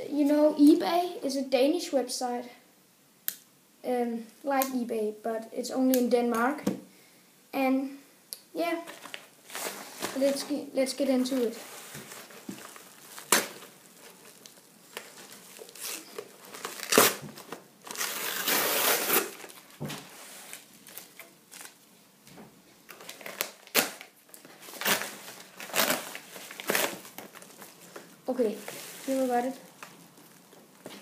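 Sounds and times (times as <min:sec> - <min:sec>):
padded envelope crinkling and tearing: 0:11.7 - 0:19.8, 0:20.4 - 0:21.8, 0:22.9 - 0:27.9.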